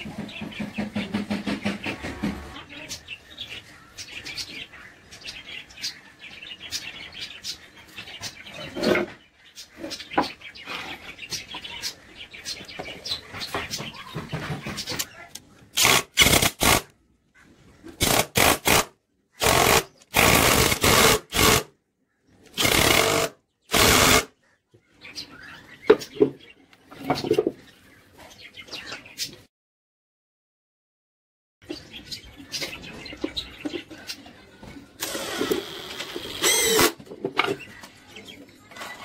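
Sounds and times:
boards clicking and knocking: 0.0s - 2.5s
cordless drill running: 19.4s - 21.6s, 22.6s - 24.3s, 35.0s - 37.0s.

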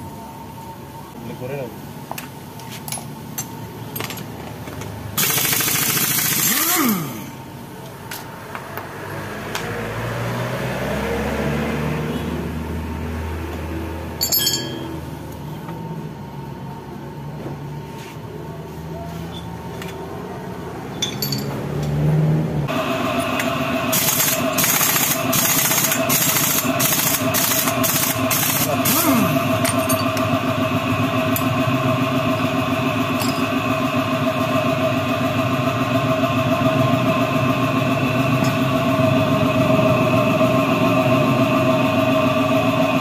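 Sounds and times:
impact wrench whirring: 5.2s - 7.4s, 23.2s - 30.1s
metal clinks of tools: 14.2s - 15.0s, 20.9s - 21.6s, 29.6s - 30.3s.

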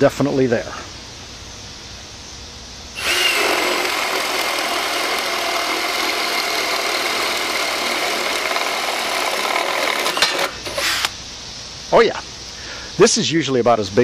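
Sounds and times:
drill motor whining: 3.0s - 11.1s
spade bit cutting wood: 3.0s - 11.2s.

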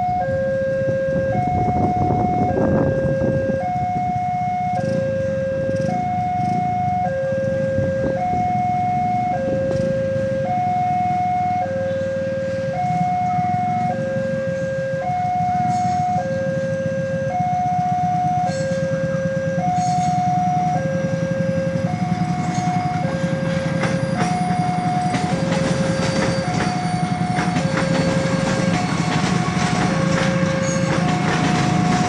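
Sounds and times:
two-tone crossing alarm: 0.0s - 32.0s
train rumble: 11.2s - 32.0s.

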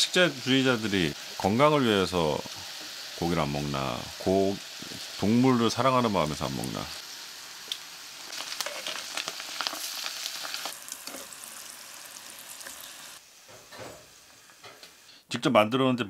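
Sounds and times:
chicken deep-frying in oil: 0.0s - 13.6s
tongs stirring: 10.9s - 11.7s.

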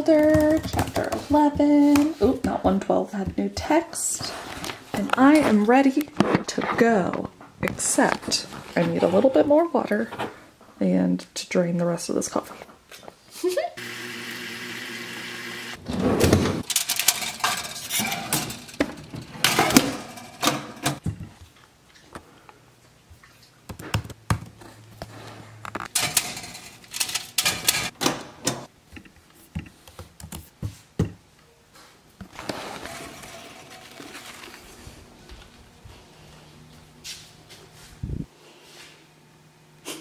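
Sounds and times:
kitchen clicks knocks and clatter: 16.2s - 21.3s, 25.9s - 28.7s
paper towel rustling: 32.3s - 36.3s.

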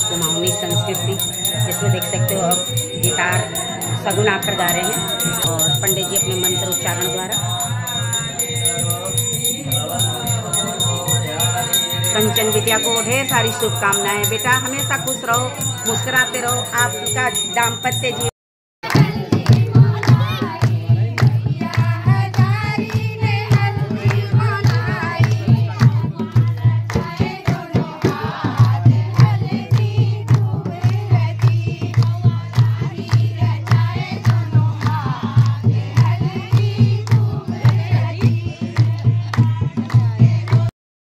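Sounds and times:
hand drum beat: 0.0s - 18.0s, 18.9s - 40.7s
women singing together: 0.0s - 40.7s
hands clapping: 29.7s - 40.7s.

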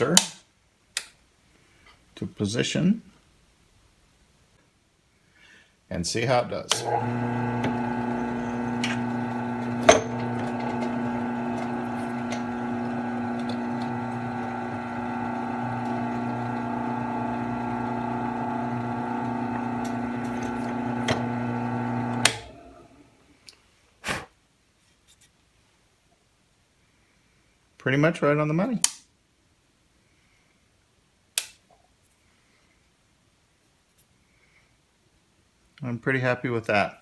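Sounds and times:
drill press motor humming: 6.7s - 23.2s.

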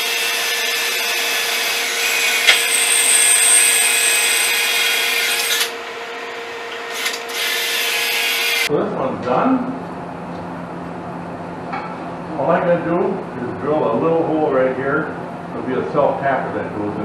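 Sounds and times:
drill bit squealing: 0.0s - 5.7s, 6.9s - 8.7s
power drill drilling sheet metal: 0.0s - 5.8s, 6.8s - 8.7s.

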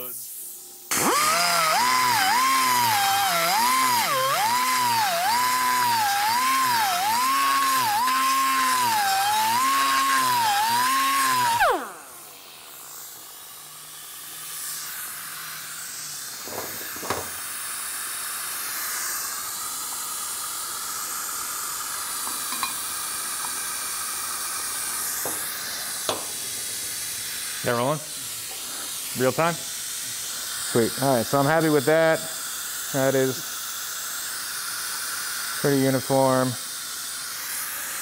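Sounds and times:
grinder spinning down: 0.9s - 29.4s
die grinder whining on metal: 0.9s - 29.6s, 34.4s - 38.0s.

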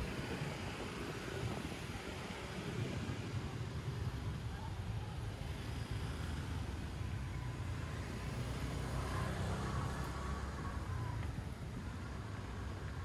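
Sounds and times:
traffic low rumble: 0.0s - 13.0s.

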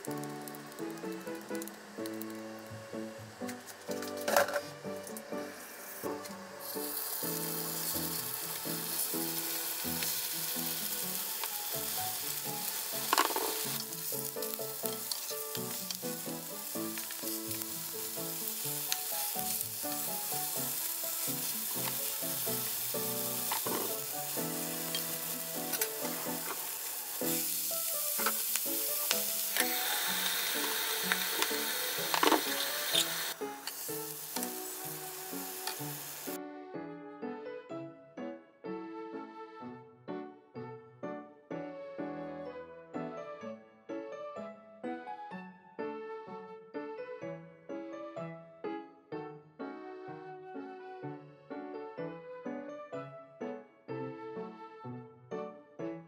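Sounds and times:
patties sizzling in oil: 0.0s - 36.4s
background music: 0.0s - 56.0s.

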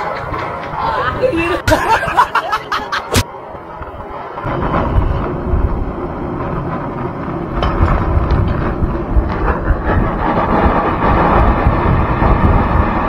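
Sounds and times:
gas torch flame rushing: 4.3s - 13.0s.

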